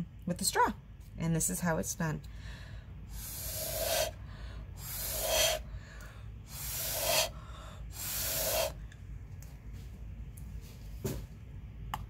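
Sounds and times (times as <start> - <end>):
breath blown through a straw: 3.1 - 5.7, 6.4 - 8.8.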